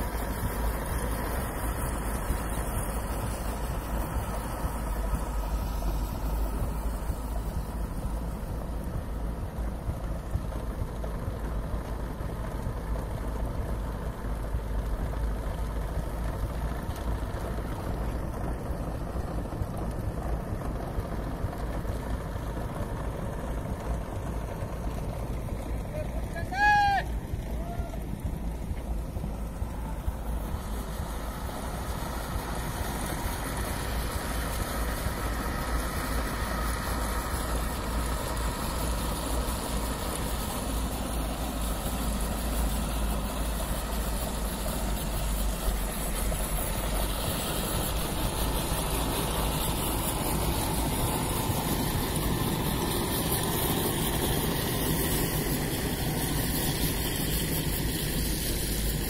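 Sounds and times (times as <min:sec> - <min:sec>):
compost-turning machine running: 0:00.0 - 0:59.0.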